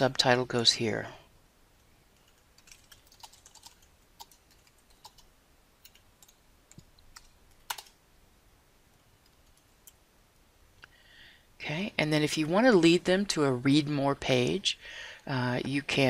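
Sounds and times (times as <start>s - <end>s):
faint computer keyboard typing: 1.8s - 8.0s, 8.9s - 10.0s.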